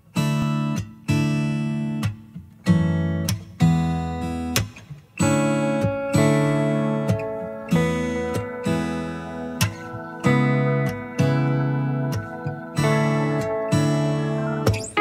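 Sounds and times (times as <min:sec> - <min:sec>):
acoustic guitar strumming chords: 0:00.1 - 0:15.0.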